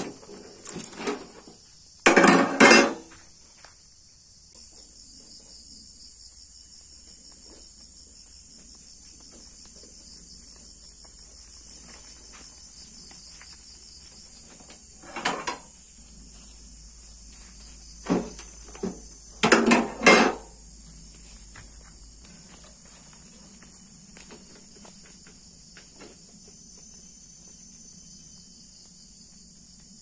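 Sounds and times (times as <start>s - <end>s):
insects droning: 0.0s - 30.0s.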